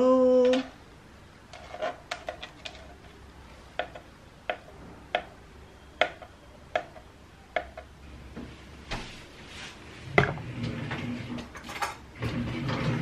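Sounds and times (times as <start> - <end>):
knife chopping on plastic board: 3.8 - 5.3, 6.0 - 7.9.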